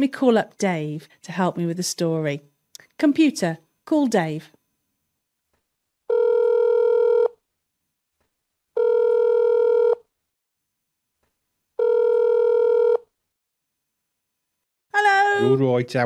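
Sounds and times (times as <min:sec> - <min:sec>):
call ringing tone beeps: 0:06.1 - 0:07.4, 0:08.8 - 0:10.0, 0:11.8 - 0:13.1.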